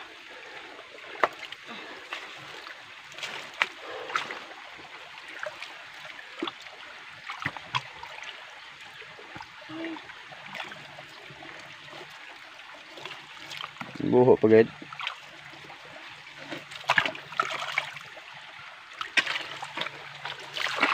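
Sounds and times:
creek water running over rocks: 0:00.0 - 0:20.9
sharp knocks and small splashes: 0:00.9 - 0:20.9.

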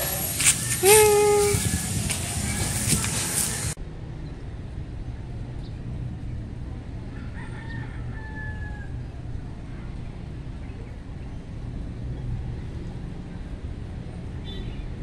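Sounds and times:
rooster crowing faintly: 0:00.0 - 0:03.8, 0:07.1 - 0:09.8.

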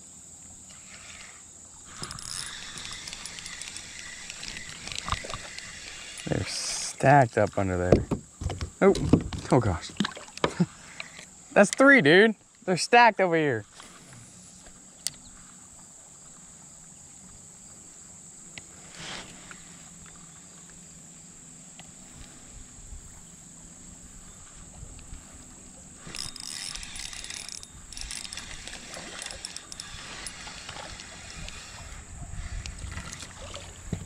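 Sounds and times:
high insect drone: 0:00.0 - 0:34.0
rattling and splashing: 0:01.9 - 0:11.1, 0:25.8 - 0:34.0.

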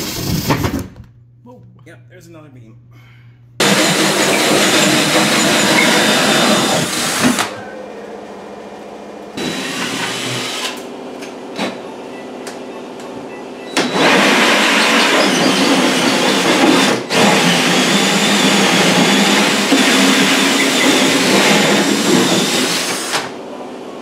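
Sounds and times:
cordless drill running: 0:03.6 - 0:07.5, 0:09.4 - 0:10.9, 0:13.8 - 0:23.3
hole saw cutting drywall: 0:03.6 - 0:07.6, 0:09.4 - 0:10.9, 0:13.7 - 0:23.4.

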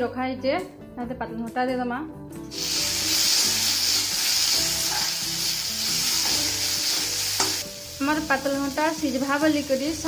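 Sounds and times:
tomatoes sizzling in hot oil: 0:02.5 - 0:10.0
steel spatula stirring: 0:03.5 - 0:05.3.

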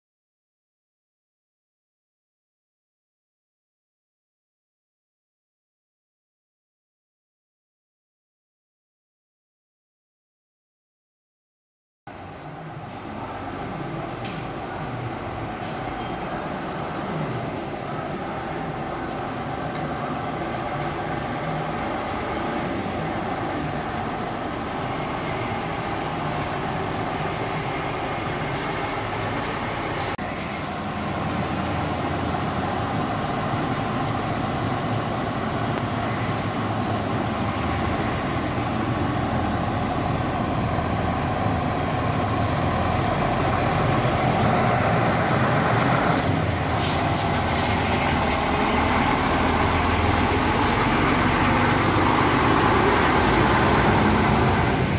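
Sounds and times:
diesel truck engine running: 0:12.1 - 0:54.9.

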